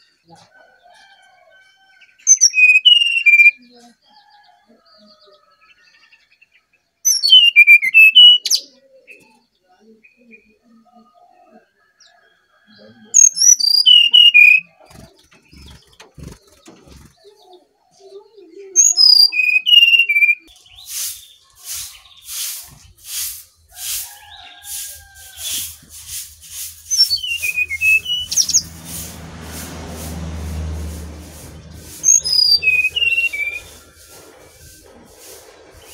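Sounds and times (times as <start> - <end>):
bird whistling song: 2.3 - 3.6, 7.1 - 9.2, 13.2 - 14.8, 18.8 - 22.4, 26.8 - 28.7, 32.0 - 33.8.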